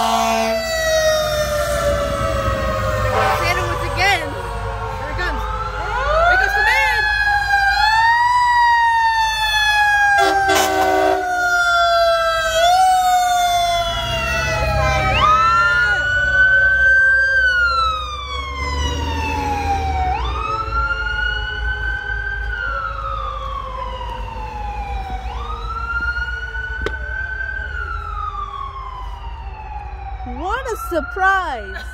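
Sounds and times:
fire truck engines rumbling: 0.0s - 31.9s
sirens wailing: 0.0s - 31.9s
horn blast: 3.1s - 4.2s, 10.2s - 11.2s.

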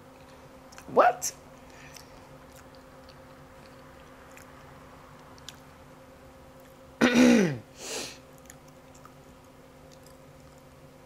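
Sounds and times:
breathy exhale: 7.7s - 8.2s.

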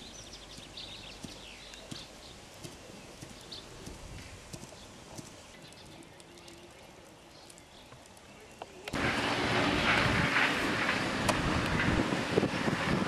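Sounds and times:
birds chirping: 0.0s - 9.0s.

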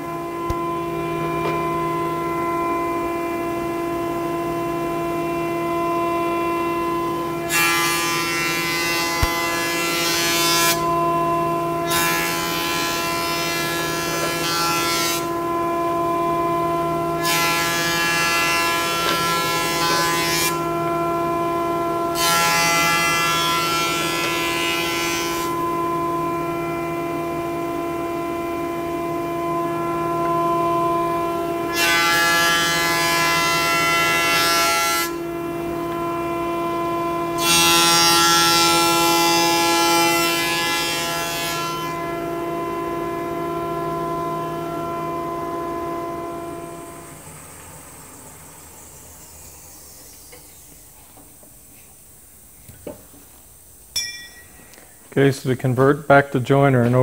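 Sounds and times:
planer motor hum: 0.0s - 48.8s
planer knives cutting boards: 0.4s - 1.7s, 7.4s - 11.0s, 11.8s - 15.4s, 17.2s - 20.8s, 22.1s - 25.6s, 31.7s - 35.2s, 37.4s - 42.0s.

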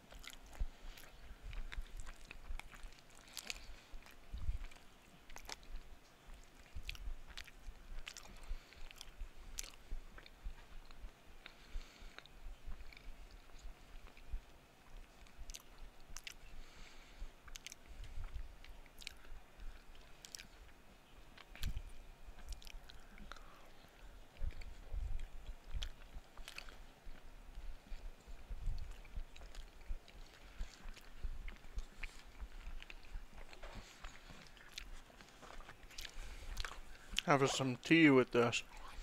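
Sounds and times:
close chewing: 0.0s - 39.0s
light mouth clicks: 15.1s - 16.9s, 17.5s - 20.6s, 21.4s - 23.6s.

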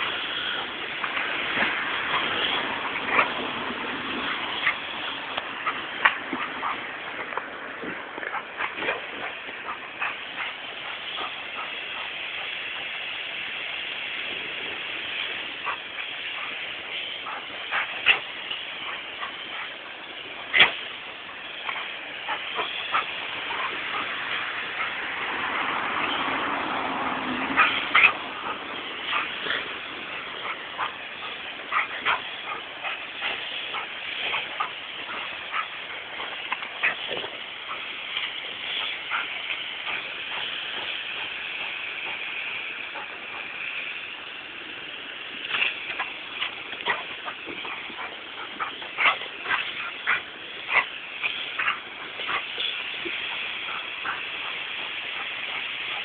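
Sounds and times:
garden hose spraying water: 0.0s - 56.0s
dog yipping and barking: 27.5s - 36.0s.

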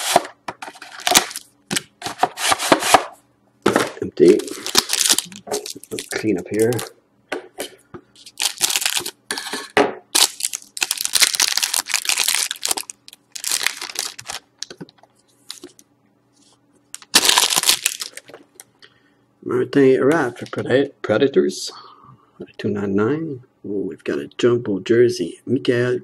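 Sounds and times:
foil wrapper crinkling: 0.8s - 1.5s, 4.3s - 6.9s, 8.2s - 9.2s, 10.1s - 14.8s, 16.9s - 18.4s.

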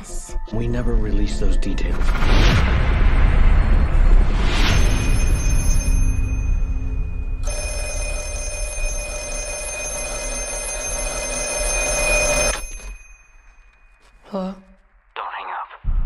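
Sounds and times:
telephone bell ringing: 4.7s - 14.2s.

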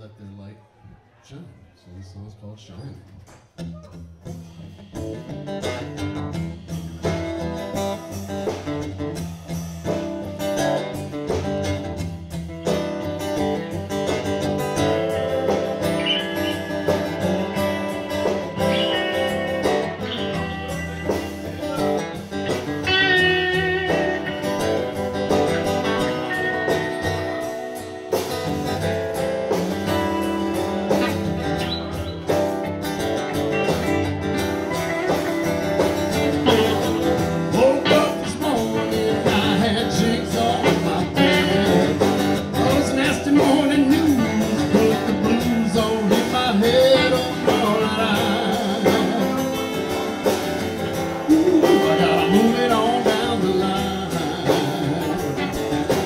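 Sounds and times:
acoustic guitar playing blues: 3.5s - 56.0s
electric guitar playing blues: 3.6s - 56.0s.

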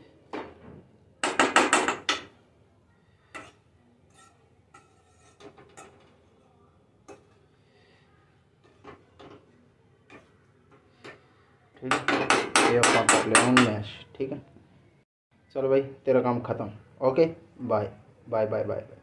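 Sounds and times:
metal ladle clanking on metal pan: 3.3s - 6.1s, 7.0s - 7.4s.

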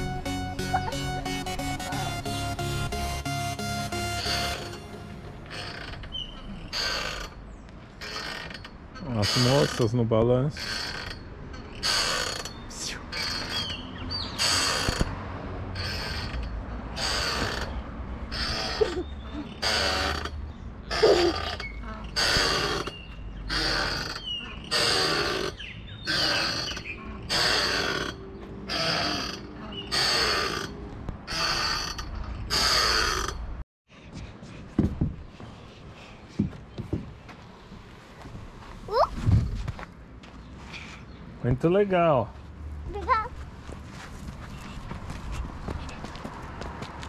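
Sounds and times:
swing chains creaking and squeaking: 0.0s - 33.6s, 38.9s - 39.6s.

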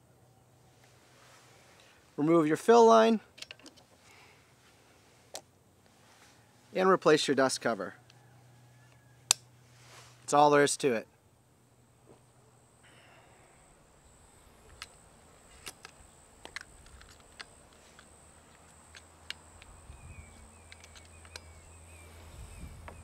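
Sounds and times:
insect buzz: 11.6s - 23.0s
bird chirping: 18.4s - 23.0s.

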